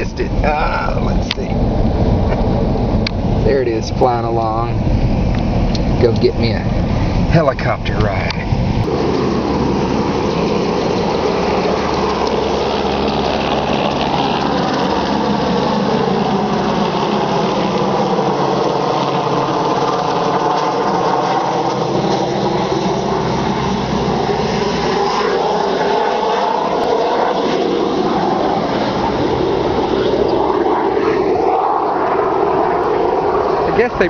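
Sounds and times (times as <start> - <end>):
car engine running: 0.0 - 34.0.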